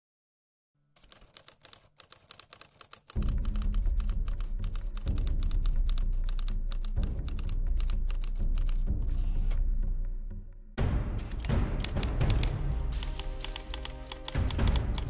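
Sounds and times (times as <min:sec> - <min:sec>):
keyboard typing clicks: 0:01.0 - 0:08.9, 0:11.2 - 0:15.0.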